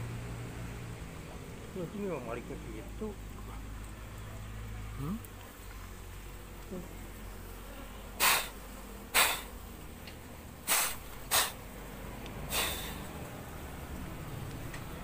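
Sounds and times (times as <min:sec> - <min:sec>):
hissing puffs of air: 0:08.2 - 0:09.6, 0:10.6 - 0:11.6, 0:12.4 - 0:13.2.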